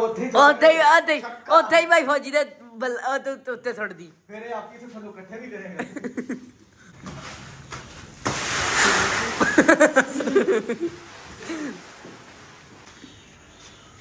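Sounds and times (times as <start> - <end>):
grain pouring into metal drum: 8.2 - 10.0.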